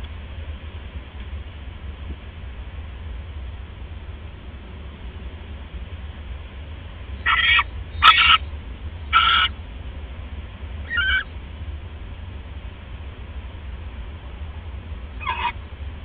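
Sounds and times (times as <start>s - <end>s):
barn owl harsh calls: 7.2s - 9.6s, 10.8s - 11.4s, 15.2s - 15.6s.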